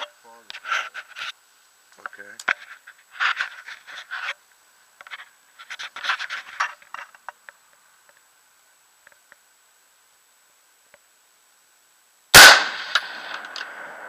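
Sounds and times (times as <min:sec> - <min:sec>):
faint ticks: 0:06.6 - 0:08.3, 0:10.9 - 0:11.1.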